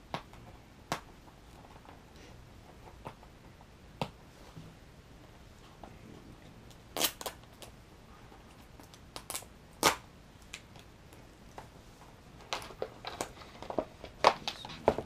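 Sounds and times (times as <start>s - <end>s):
cardboard and packaging rustling: 12.0s - 15.0s.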